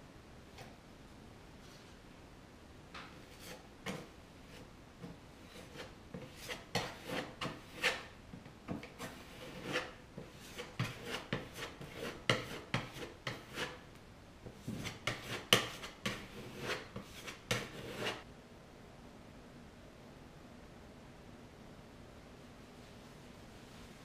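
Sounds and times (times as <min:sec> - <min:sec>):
hand scraper scraping wood: 0:03.2 - 0:08.1, 0:08.7 - 0:13.8, 0:14.5 - 0:18.2.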